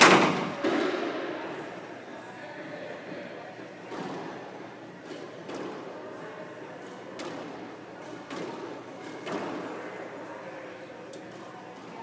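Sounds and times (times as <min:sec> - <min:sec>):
squash ball hitting rackets and walls: 0:00.0 - 0:01.2, 0:03.8 - 0:04.4, 0:05.0 - 0:05.9, 0:06.8 - 0:09.7.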